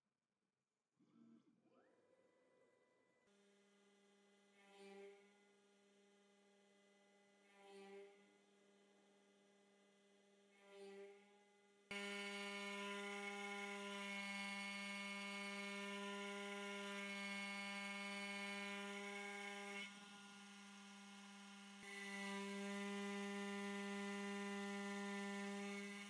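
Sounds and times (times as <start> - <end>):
spindle motor hum with whine: 11.9 - 26.0.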